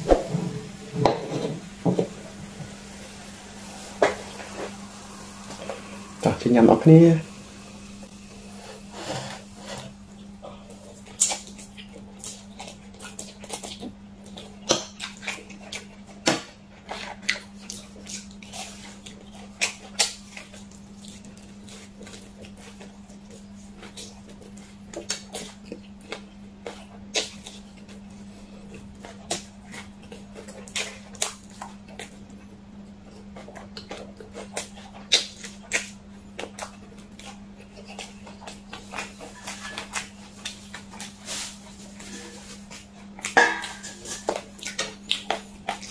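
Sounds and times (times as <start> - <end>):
steady low hum: 0.0 - 45.9
fried chicken bitten and chewed: 9.8 - 43.4, 44.0 - 45.9.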